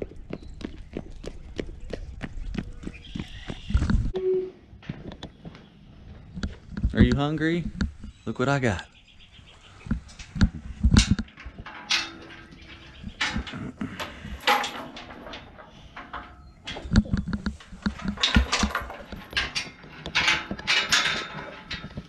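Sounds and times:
metal gate rattling: 9.6 - 22.0
heavy thumps: 9.9 - 22.0.

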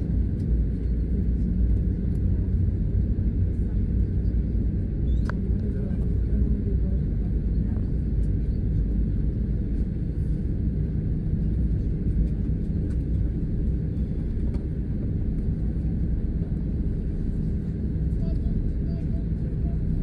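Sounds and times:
aircraft cabin engine rumble: 0.0 - 20.0.

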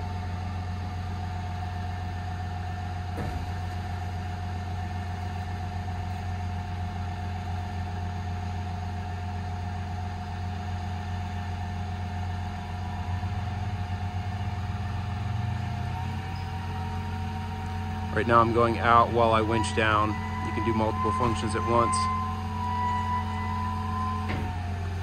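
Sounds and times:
diesel engine running: 0.0 - 25.0
crane hydraulics whining: 12.5 - 25.0.

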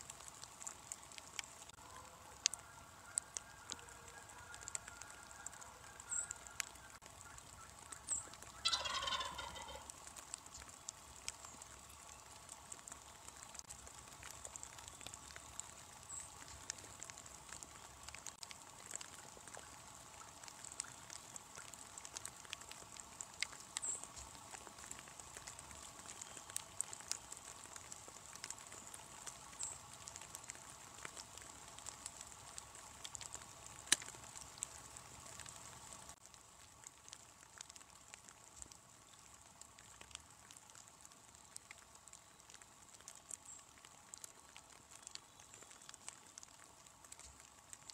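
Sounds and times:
raindrops ticking: 0.0 - 47.9
turkey gobbling: 1.8 - 10.0.

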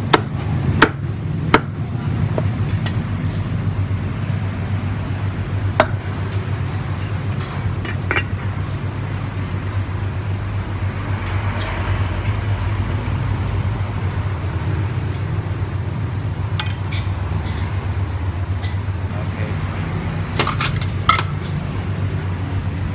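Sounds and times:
plates and utensils clinking: 7.4 - 8.4.

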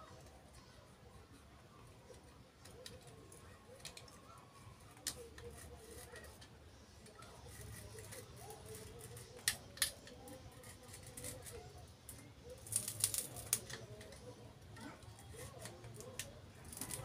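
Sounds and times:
knife scraping coconut husk: 5.0 - 6.5, 7.3 - 11.7.

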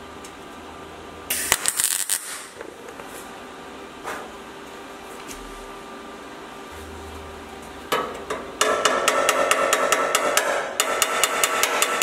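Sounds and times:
hammer tapping steel panel: 8.0 - 12.0.

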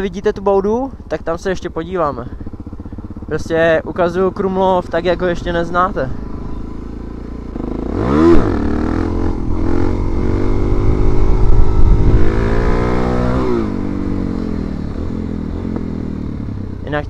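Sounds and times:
dirt bike engine revving: 0.0 - 17.0
wind on microphone: 9.3 - 14.2.

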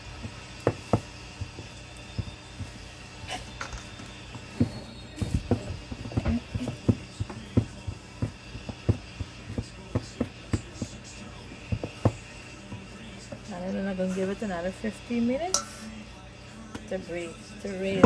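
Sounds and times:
fists thumping bread dough: 0.0 - 2.9, 4.3 - 13.5.

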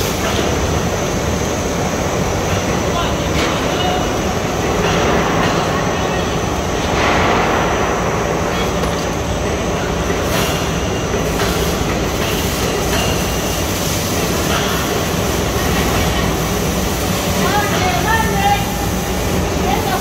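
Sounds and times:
loud machinery din: 6.9 - 8.5.

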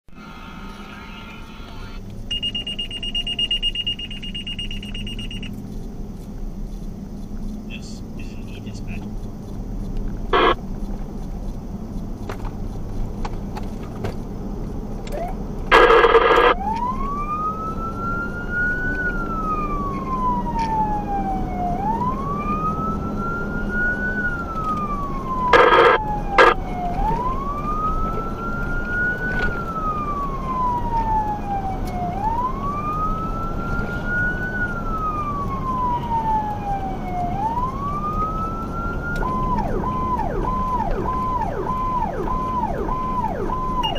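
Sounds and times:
engine and road rumble: 0.0 - 43.9
fire engine siren: 0.1 - 5.7, 10.3 - 10.6, 15.1 - 43.9.

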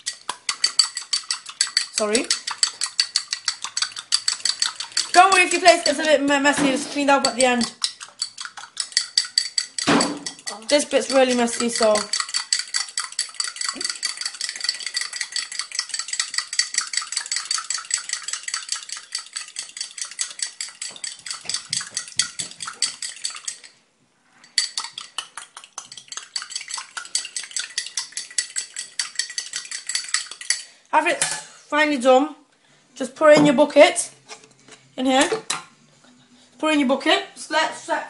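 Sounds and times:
fork clinking against glass cup: 0.0 - 6.1, 7.2 - 23.7, 24.4 - 25.2, 25.9 - 30.7.

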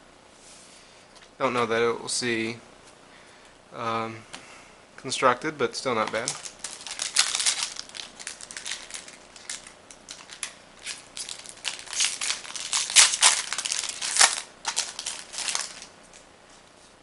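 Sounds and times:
foil wrapper crinkling and tearing: 6.0 - 16.2.

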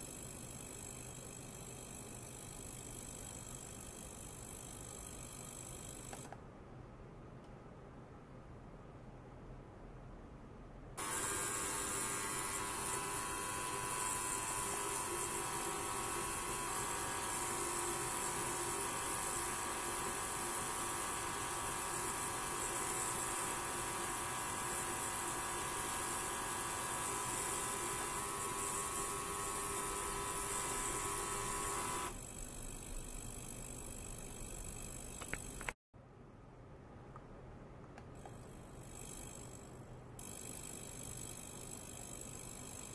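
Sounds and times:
ultrasonic cleaner buzzing: 11.0 - 35.8.

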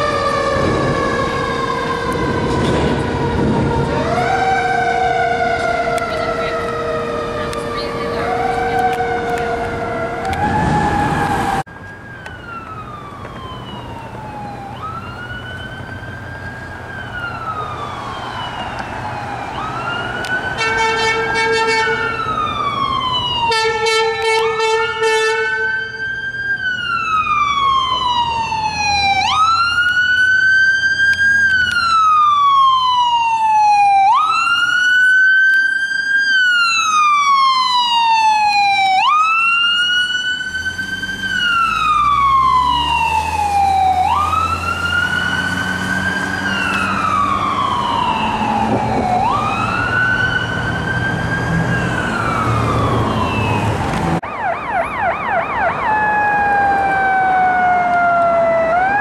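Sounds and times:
vehicle engine rumble: 0.0 - 23.5, 39.4 - 59.0
siren wailing: 0.0 - 59.0
yelping siren: 0.0 - 59.0.

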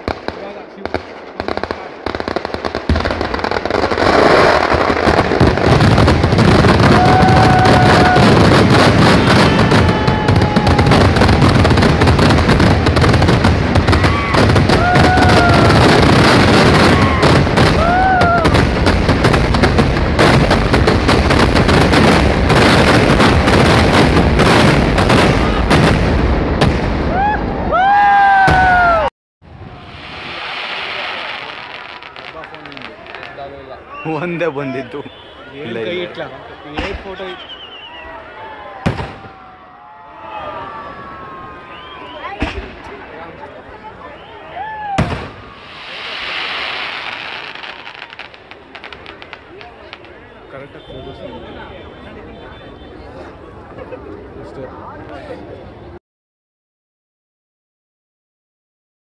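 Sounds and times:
fireworks crackling bangs: 0.0 - 27.3, 29.5 - 37.6, 38.7 - 39.6, 41.8 - 53.8
firework whistles: 29.6 - 39.3, 41.3 - 42.7, 44.0 - 53.1.

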